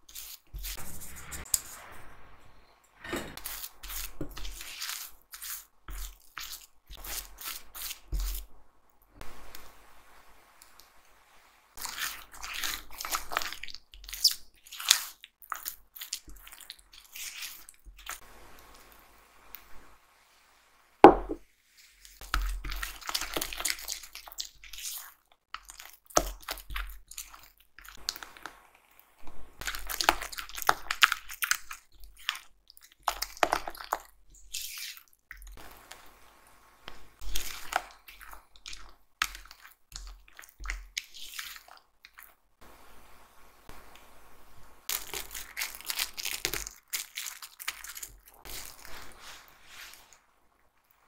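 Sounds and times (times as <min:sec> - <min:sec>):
spatula stirring wet batter: 0:00.0 - 0:01.9, 0:03.2 - 0:09.2, 0:11.7 - 0:19.0, 0:21.6 - 0:42.6, 0:44.9 - 0:51.0
sharp knock: 0:21.0 - 0:21.4.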